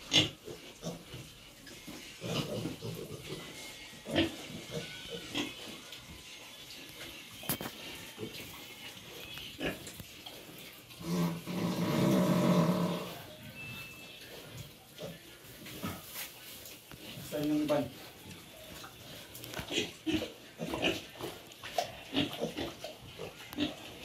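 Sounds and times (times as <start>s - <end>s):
pigs grunting: 0.0s - 1.4s, 2.2s - 5.8s, 10.4s - 13.3s, 19.6s - 24.0s
long loud pig call: 11.0s - 13.3s.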